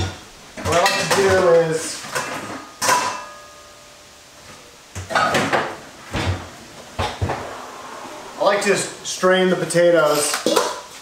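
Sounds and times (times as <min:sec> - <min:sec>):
metal bowls knocking and clattering: 0:00.0 - 0:03.6, 0:10.4 - 0:11.0
cupboard opening: 0:05.0 - 0:08.8.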